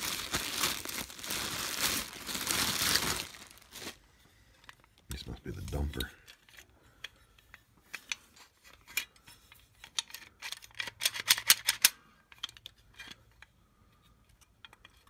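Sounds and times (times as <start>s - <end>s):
steel parts clicking and clinking: 5.9s - 15.0s.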